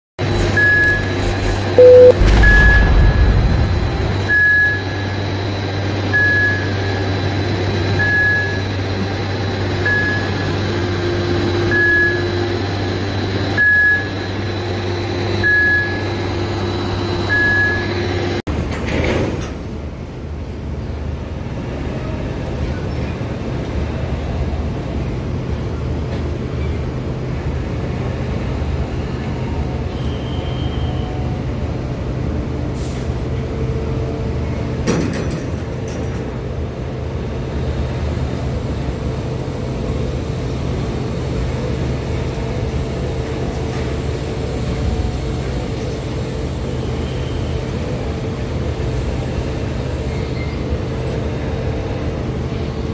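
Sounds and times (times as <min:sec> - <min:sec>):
crane machinery humming: 0:00.2 - 0:18.4, 0:20.0 - 0:52.9
warning beeper: 0:01.7 - 0:05.2
low engine rumble: 0:01.8 - 0:06.0.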